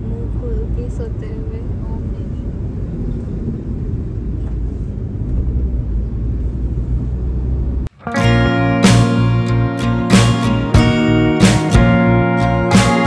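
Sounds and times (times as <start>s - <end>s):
car cabin road rumble: 0.0s - 8.0s
strummed acoustic guitar music: 7.9s - 13.0s.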